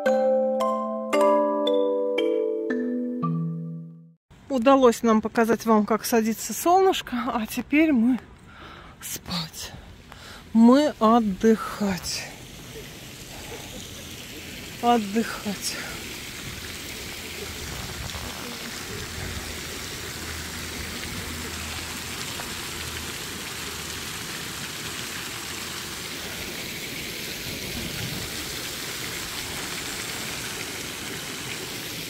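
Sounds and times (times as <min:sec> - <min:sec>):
fountain water splashing: 0:10.2 - 0:32.0.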